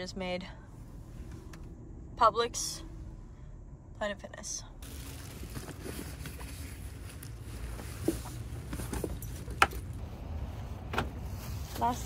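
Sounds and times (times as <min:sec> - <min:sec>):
low steady rumble: 0:00.0 - 0:12.0
bag rustling: 0:04.8 - 0:10.0.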